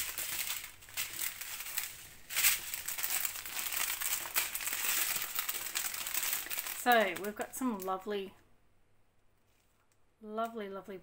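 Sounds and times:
plastic packets crinkling: 0.0s - 8.1s.

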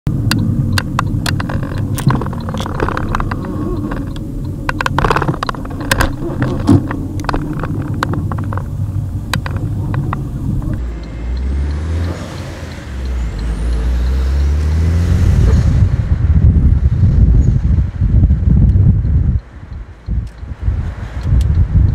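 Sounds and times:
engine and road rumble: 0.0s - 21.9s
car cabin rattling: 0.1s - 10.8s
engine accelerating: 0.1s - 17.6s.

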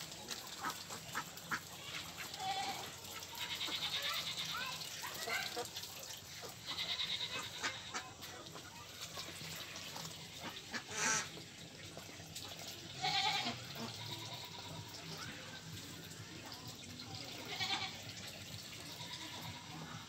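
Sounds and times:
ducks quacking: 0.4s - 11.6s.

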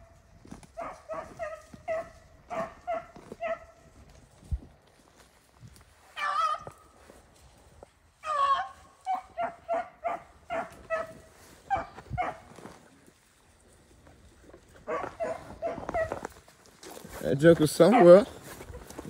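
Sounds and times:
hound baying: 0.0s - 4.0s, 6.1s - 6.8s, 8.2s - 12.8s, 14.7s - 16.4s, 17.8s - 18.4s
dog barking: 0.8s - 3.8s, 8.2s - 12.5s, 14.8s - 16.2s, 17.9s - 18.3s.

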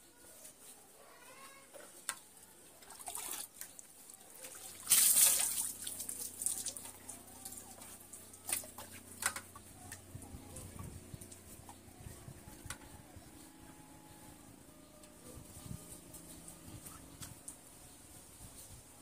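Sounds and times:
water dripping: 2.8s - 10.0s
water splashing on concrete: 4.4s - 9.5s.

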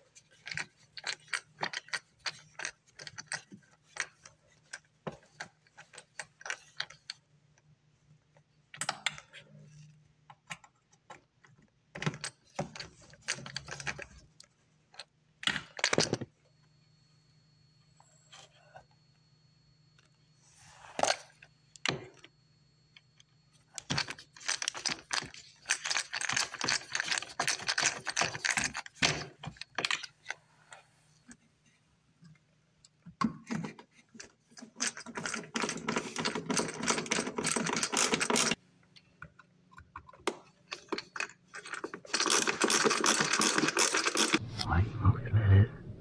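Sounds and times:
rattling and clicking: 40.7s - 44.4s.

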